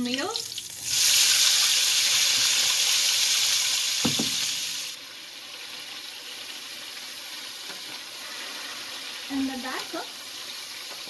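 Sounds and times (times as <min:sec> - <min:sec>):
tomatoes sizzling in hot oil: 0:00.0 - 0:11.0
wooden spoon knocking on pan: 0:04.0 - 0:04.5.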